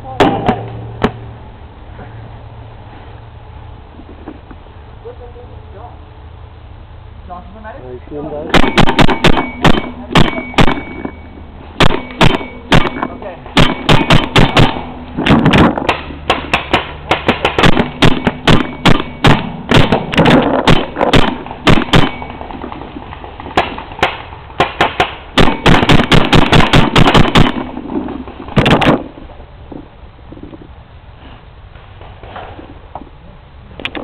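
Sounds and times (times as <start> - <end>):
paintball marker firing: 8.6 - 11.0, 11.8 - 22.4, 23.4 - 27.7.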